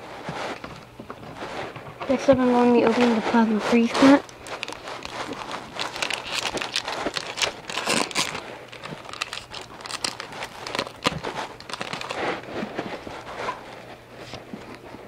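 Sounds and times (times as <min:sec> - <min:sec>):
foil wrapper tearing and crinkling: 0:03.8 - 0:13.8.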